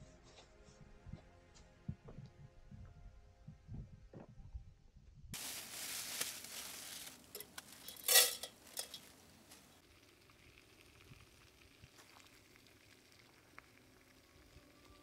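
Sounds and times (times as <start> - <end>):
utensil clinking against pot: 7.4 - 9.1.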